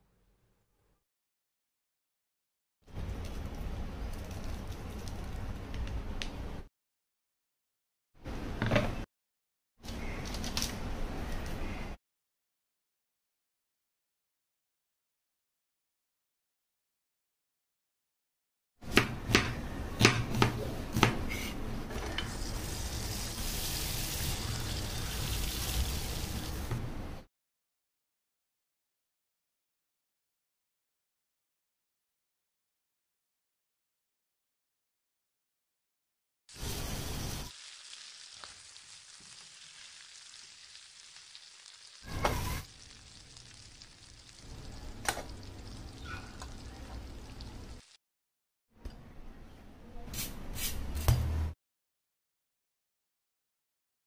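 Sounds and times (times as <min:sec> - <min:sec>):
knife chopping onion on board: 0:18.9 - 0:21.2
onions sizzling in frying pan: 0:22.4 - 0:26.7, 0:36.5 - 0:48.0.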